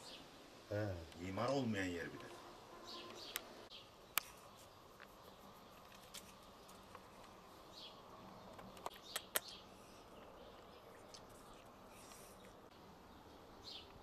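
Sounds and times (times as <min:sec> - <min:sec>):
sharp clicks: 0:08.5 - 0:09.6.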